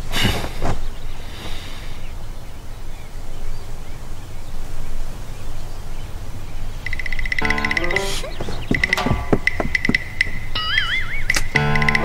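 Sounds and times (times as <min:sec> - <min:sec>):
low wind-like rumble: 0:00.0 - 0:07.4
faint high chirps: 0:06.8 - 0:12.0.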